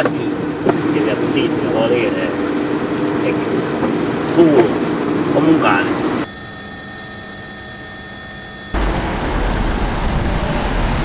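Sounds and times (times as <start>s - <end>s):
street noise with deep rumble: 0.0s - 6.3s, 8.8s - 11.0s
cars driving off: 8.8s - 11.0s.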